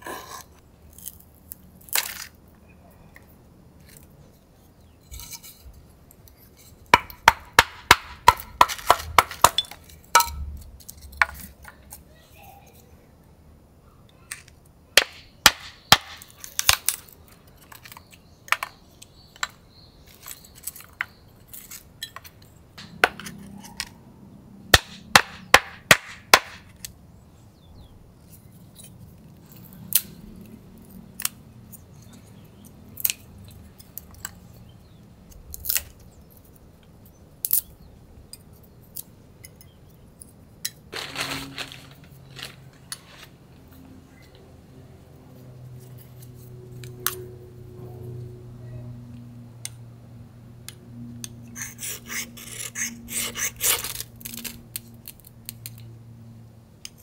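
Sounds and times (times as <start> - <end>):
knife splitting wood sticks: 5.2 - 12.1, 14.3 - 24.0, 51.6 - 55.8
short rustle: 40.9 - 43.4.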